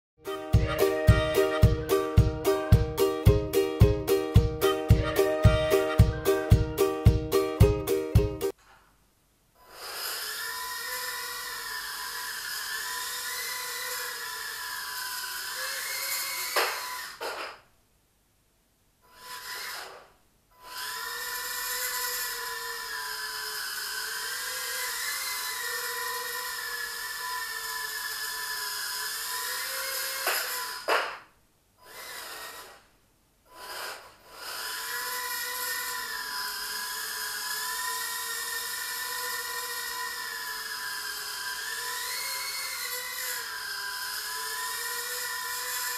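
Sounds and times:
quadcopter motors whining: 0.3s - 3.0s, 9.6s - 17.4s, 19.1s - 31.2s, 31.8s - 32.9s, 33.5s - 45.9s
sharp knock: 30.2s - 31.3s.

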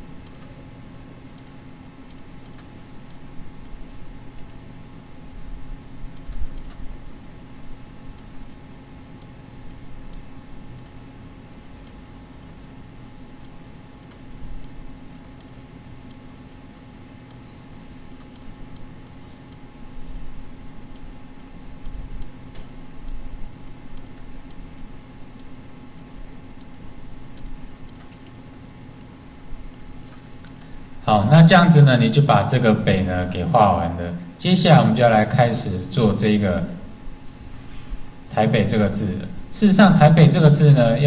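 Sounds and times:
steady low hum: 0.0s - 41.0s
computer mouse clicking: 0.2s - 0.5s, 1.3s - 4.6s, 6.1s - 6.9s, 9.2s - 11.0s, 13.4s - 16.6s, 18.0s - 20.3s, 20.9s - 30.7s.

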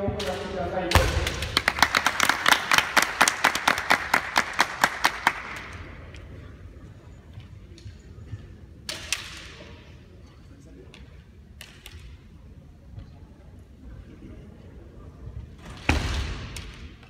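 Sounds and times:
spectators clapping: 1.2s - 5.9s.

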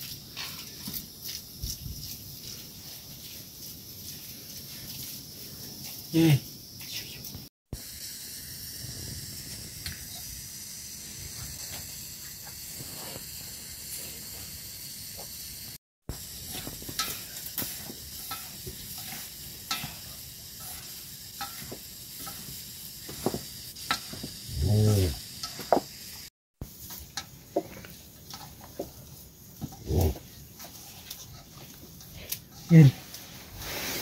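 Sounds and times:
steady low hiss: 15.2s - 34.0s
dough mixing in metal bowl: 16.1s - 23.4s.

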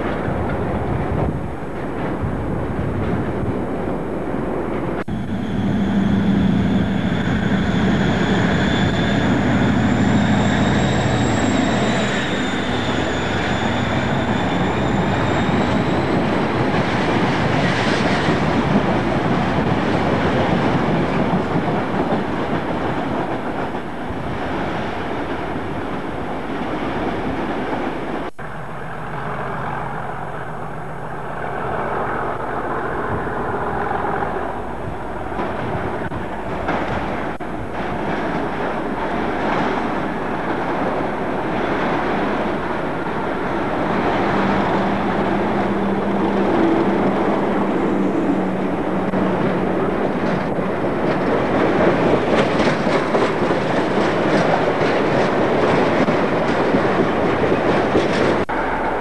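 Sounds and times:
distant train hum: 0.0s - 59.0s
freight train wheels rumbling: 0.0s - 59.0s
wavering wheel squeal: 5.1s - 16.6s.

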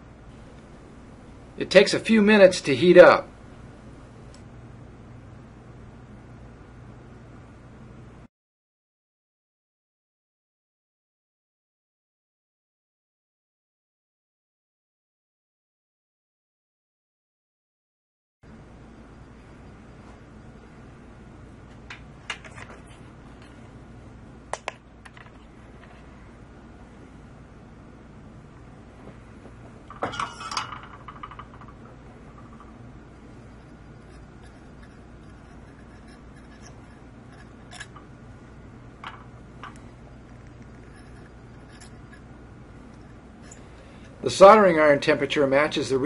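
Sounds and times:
low background noise: 0.0s - 8.3s, 18.5s - 46.0s
steady low hum: 0.0s - 8.3s, 18.4s - 46.0s.

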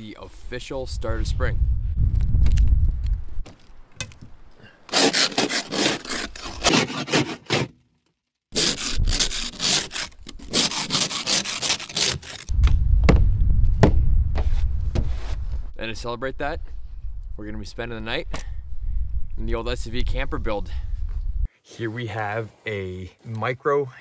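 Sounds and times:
low rumble: 0.4s - 3.4s, 12.5s - 21.5s
scraper scraping windshield: 4.9s - 7.7s, 8.6s - 12.5s.

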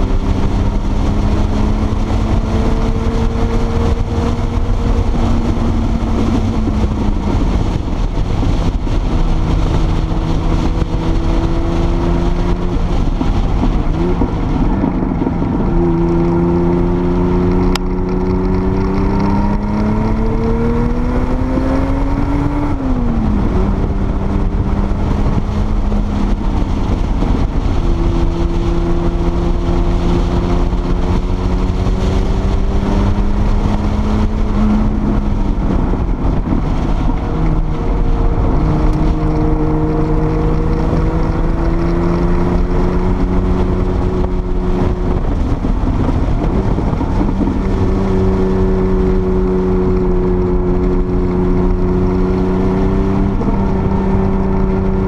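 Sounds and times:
car engine running hard: 0.0s - 55.0s
wind and road noise: 0.0s - 55.0s.

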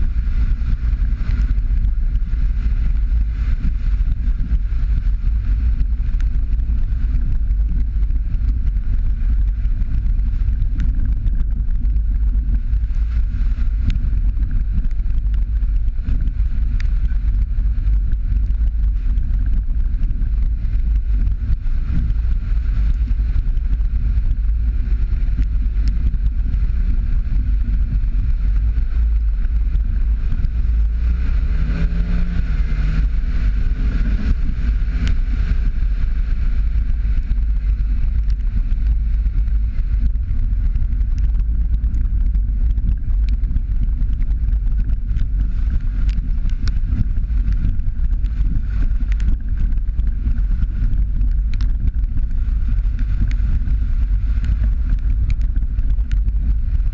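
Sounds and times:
vehicle road noise on gravel: 0.0s - 56.9s
wind buffeting: 0.0s - 56.9s
faint ticks: 36.8s - 56.9s.

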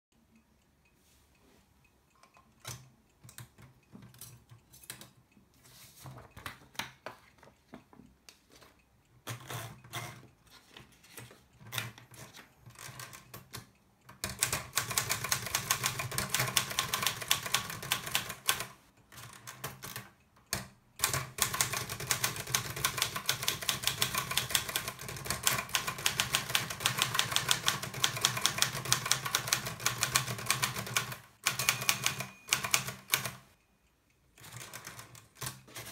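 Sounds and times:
rapid typewriter typing: 11.7s - 33.6s, 34.4s - 35.9s.

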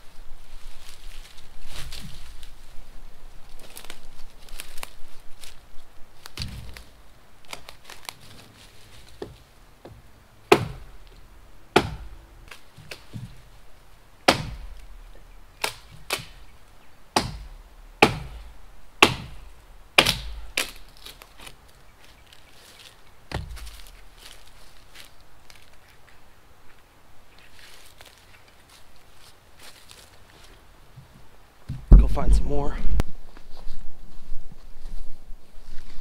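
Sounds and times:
axe chopping wood: 9.2s - 10.9s, 11.8s - 13.4s, 14.3s - 15.0s, 15.6s - 16.4s, 17.2s - 19.4s, 20.0s - 21.2s, 23.3s - 23.9s.

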